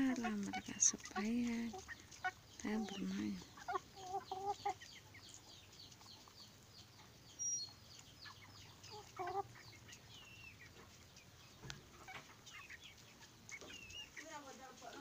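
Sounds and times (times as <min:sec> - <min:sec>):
chickens chirping: 0:00.0 - 0:15.0
chickens clucking softly: 0:00.0 - 0:15.0.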